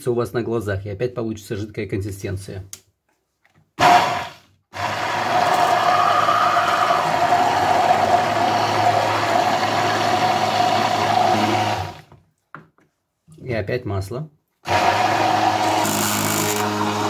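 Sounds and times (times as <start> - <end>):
immersion blender running: 3.8 - 12.1, 14.6 - 17.0.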